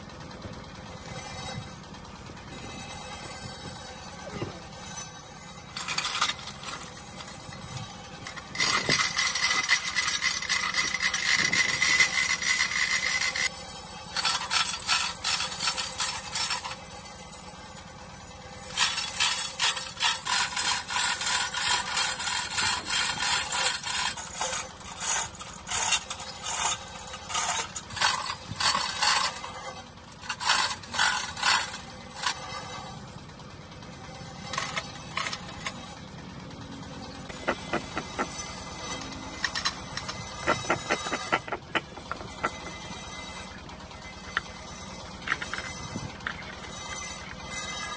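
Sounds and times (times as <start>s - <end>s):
hoist chain rattling and clicking: 5.8s - 13.5s, 18.7s - 32.4s, 34.3s - 47.9s.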